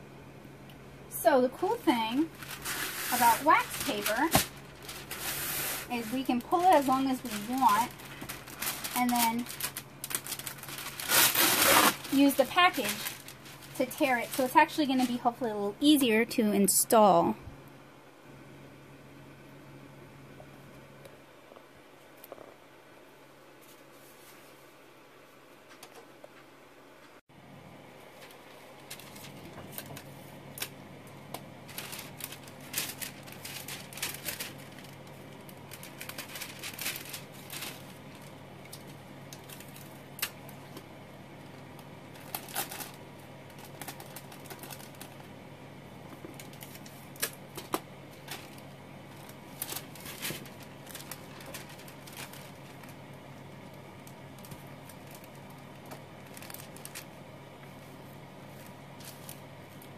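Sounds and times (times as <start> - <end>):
steady low hum: 0.0 - 59.9
wax paper crinkling: 1.5 - 16.1, 28.1 - 45.4, 46.0 - 59.9.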